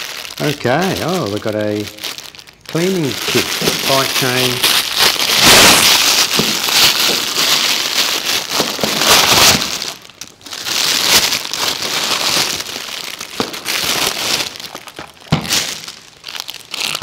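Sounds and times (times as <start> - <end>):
plastic bag crinkling: 0.0 - 17.0.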